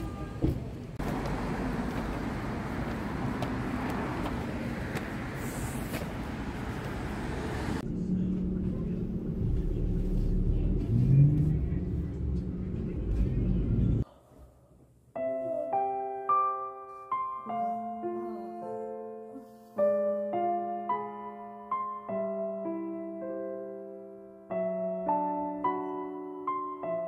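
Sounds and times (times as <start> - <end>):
vehicle rumble from inside: 0.9 - 14.0.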